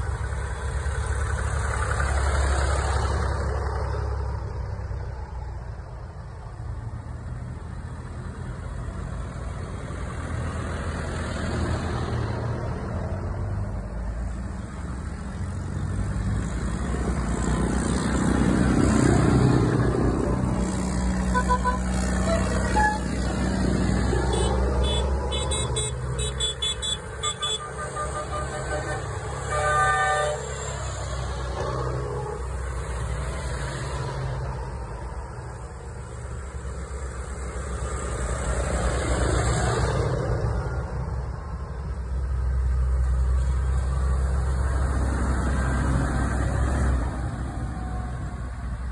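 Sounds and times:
tractor diesel engines rumbling: 0.0s - 48.9s
loud horn blast: 21.3s - 23.2s, 24.3s - 30.6s
short horn toots: 21.3s - 23.2s.

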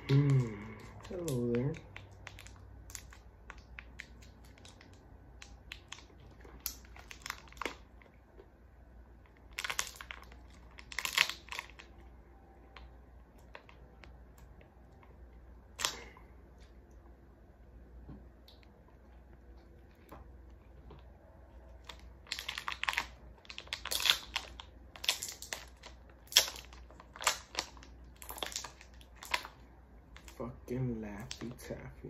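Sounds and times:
plastic wrapper crinkling: 0.0s - 8.4s, 9.2s - 15.1s, 20.8s - 31.8s.

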